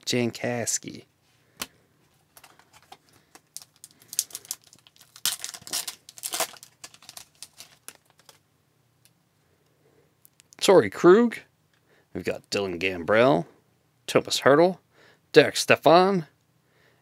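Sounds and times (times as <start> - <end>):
cards rustling: 1.6 - 8.4
foil wrapper crinkling and tearing: 2.4 - 8.4.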